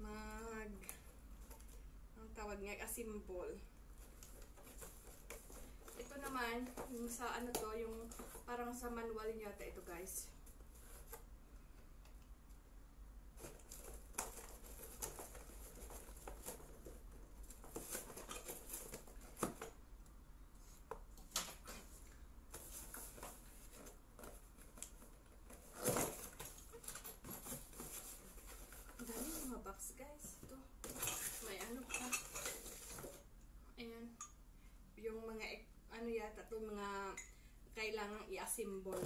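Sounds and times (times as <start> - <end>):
packaging rustling: 13.4 - 19.7, 22.5 - 29.6, 30.8 - 33.2.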